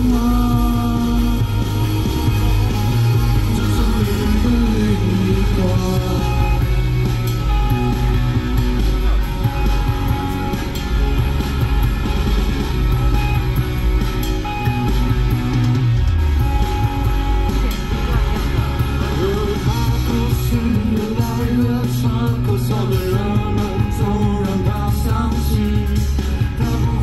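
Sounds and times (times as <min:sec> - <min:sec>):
person singing into microphone: 0:00.0 - 0:06.9, 0:19.1 - 0:27.0
rock backing track: 0:00.0 - 0:27.0.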